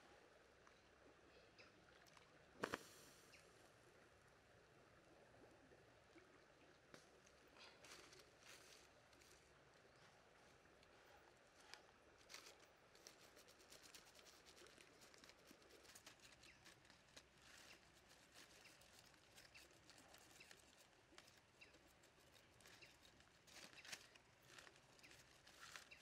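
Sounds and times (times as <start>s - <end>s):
faint clicks and rustles: 6.1s - 26.0s.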